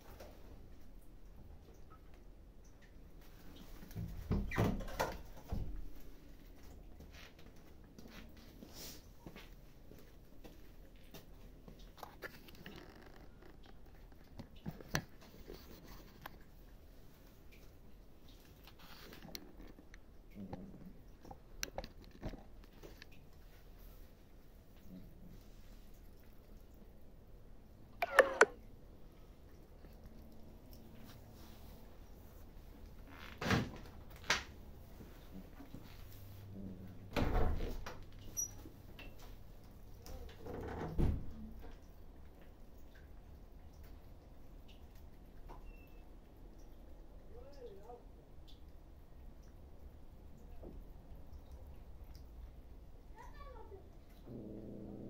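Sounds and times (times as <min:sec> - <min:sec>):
cats chewing and crunching: 0:05.4 - 0:28.0, 0:28.6 - 0:33.1, 0:41.4 - 0:45.5
small clicks: 0:28.0 - 0:28.6.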